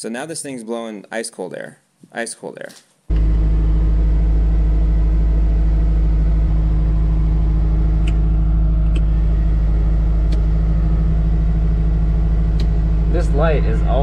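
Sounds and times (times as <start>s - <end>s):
air conditioner blowing: 3.1s - 14.0s
engine running steadily: 3.1s - 14.0s
control knobs clicking: 8.0s - 9.2s, 10.2s - 10.8s, 12.5s - 13.9s.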